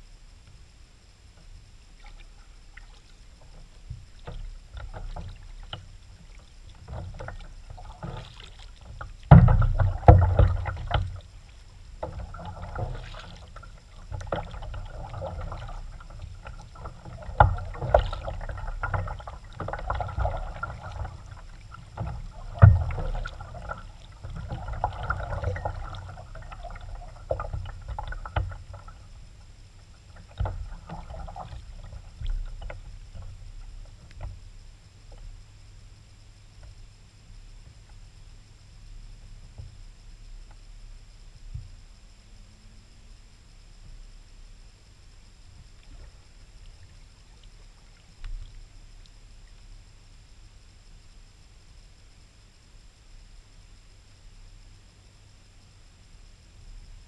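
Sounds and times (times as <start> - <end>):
paddle splashing water: 1.9 - 34.4.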